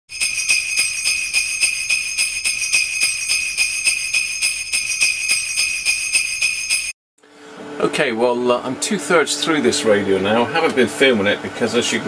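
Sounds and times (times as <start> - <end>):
sleigh bells jingling: 0.1 - 7.0.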